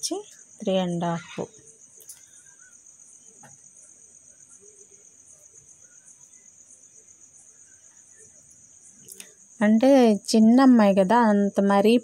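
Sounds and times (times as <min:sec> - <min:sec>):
high-pitched insect trill: 0:00.0 - 0:12.0.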